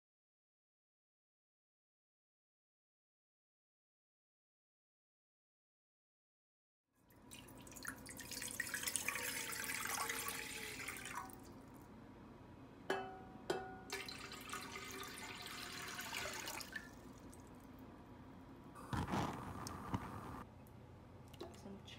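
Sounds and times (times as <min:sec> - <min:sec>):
water pouring into pot: 0:07.1 - 0:11.5, 0:13.9 - 0:17.5
water running: 0:07.1 - 0:11.7, 0:13.9 - 0:17.7.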